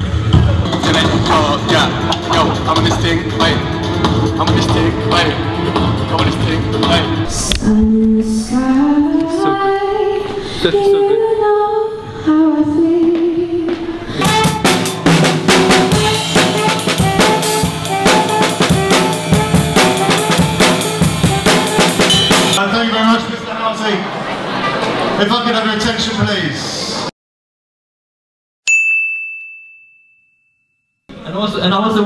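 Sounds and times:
drum kit playing busy beat: 0.0s - 7.3s, 14.2s - 22.6s
sustained pitched tones: 4.4s - 22.6s
sliding melody line: 14.2s - 22.6s.

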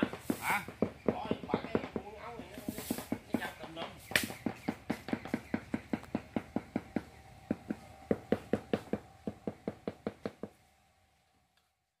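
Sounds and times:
rapid sharp knocks: 0.0s - 10.6s
faint steady hum: 3.2s - 12.0s.

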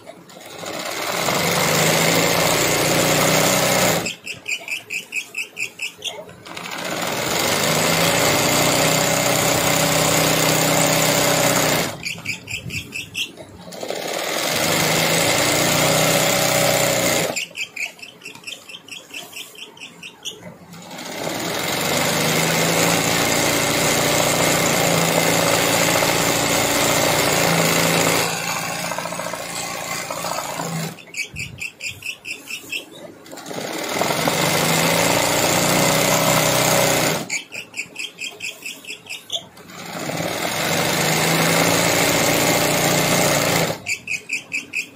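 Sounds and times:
sewing machine running fast: 0.2s - 4.2s, 6.4s - 13.0s, 13.6s - 17.5s, 20.7s - 31.2s, 33.2s - 37.4s, 39.6s - 44.0s
clatter of single stitches: 0.3s - 4.5s, 6.4s - 12.4s, 13.2s - 18.6s, 20.7s - 31.3s, 33.2s - 37.7s, 39.3s - 44.1s.

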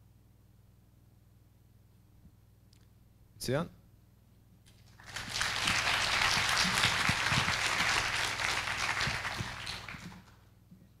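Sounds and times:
audience applauding: 4.9s - 10.4s.

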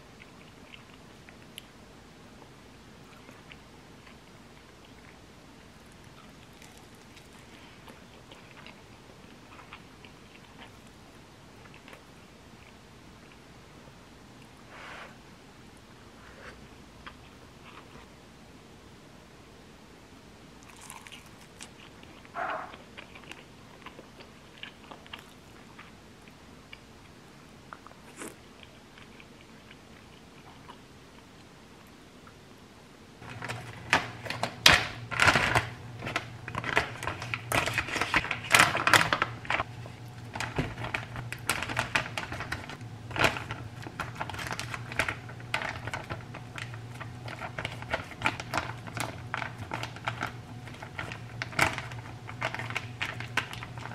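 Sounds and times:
faint eating sounds: 0.0s - 15.4s, 20.5s - 32.6s
steady low hum: 0.0s - 53.9s
plastic zipper bag crinkling: 33.2s - 53.9s.

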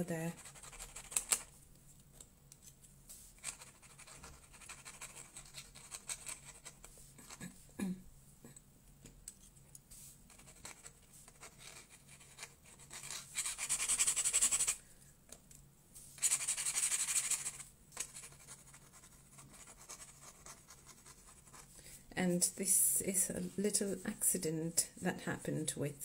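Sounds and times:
pen nib scratching on paper: 0.3s - 1.5s, 3.4s - 7.5s, 10.3s - 14.8s, 16.2s - 21.7s.

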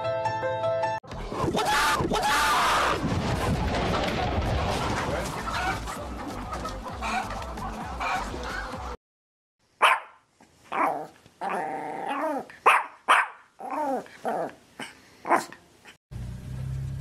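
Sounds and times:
dog barking: 9.8s - 14.0s, 14.8s - 15.6s.

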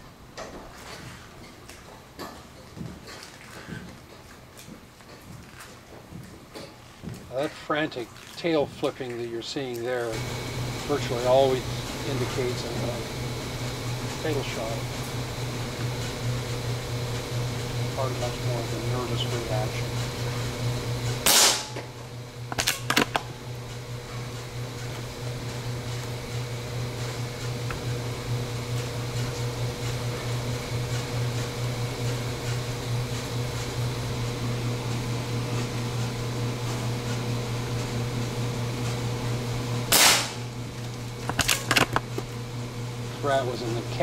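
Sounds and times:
steady low hum: 3.7s - 44.0s
air gun shots: 21.2s - 21.9s, 39.9s - 40.5s.

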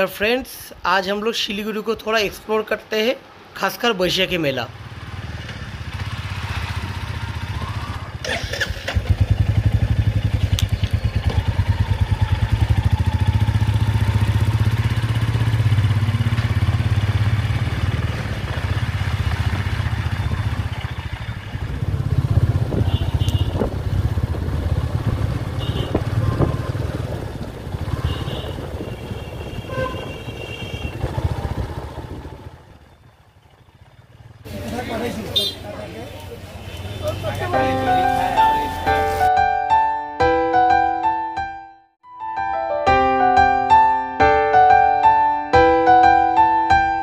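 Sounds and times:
motorbike engine running: 4.9s - 35.8s.

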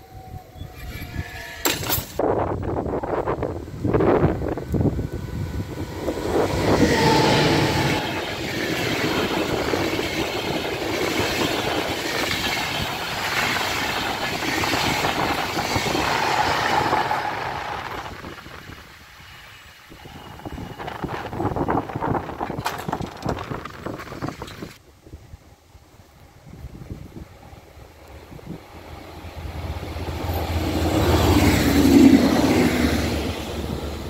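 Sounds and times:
passenger train passing: 2.2s - 22.6s, 23.4s - 34.0s
wheels clattering over rail joints: 20.4s - 24.8s.

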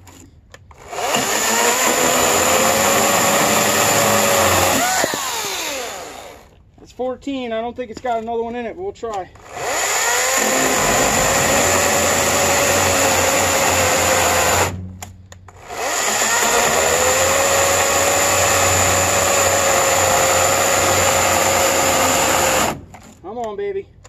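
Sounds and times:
electric chainsaw cutting wood: 0.7s - 6.5s, 9.4s - 14.8s, 15.6s - 23.0s.

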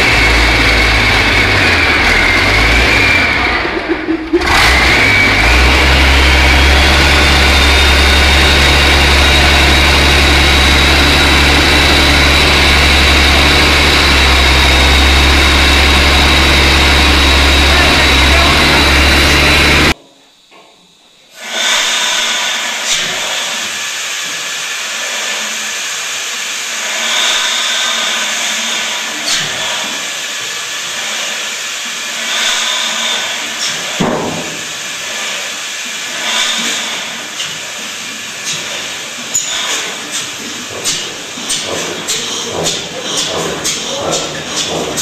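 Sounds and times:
engine running: 0.0s - 20.0s, 21.4s - 45.0s
sharp knock: 34.0s - 34.6s.

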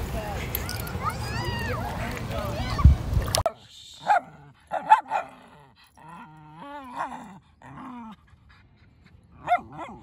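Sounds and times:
dog barking: 4.0s - 5.4s, 9.4s - 10.0s.

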